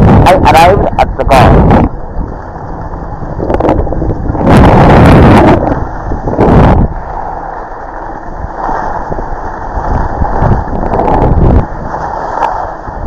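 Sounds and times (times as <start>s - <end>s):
wind buffeting microphone: 0.0s - 13.0s
skis sliding on snow: 0.4s - 13.0s.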